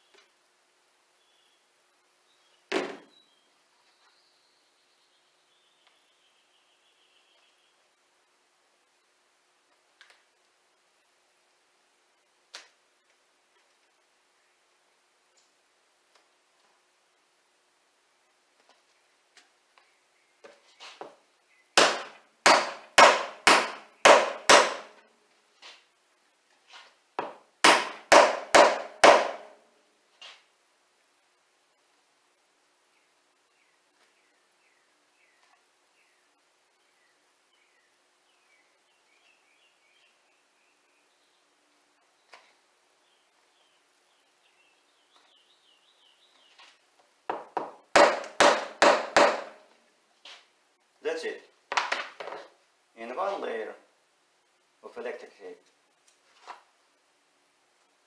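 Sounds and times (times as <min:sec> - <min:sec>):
sharp knocks: 0:21.8 - 0:25.0, 0:27.2 - 0:29.6, 0:47.3 - 0:49.6.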